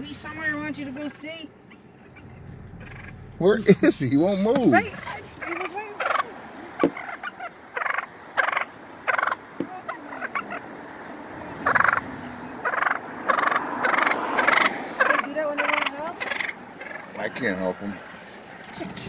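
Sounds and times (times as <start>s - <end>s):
turkey gobbling: 1.7s - 10.8s, 11.6s - 17.2s.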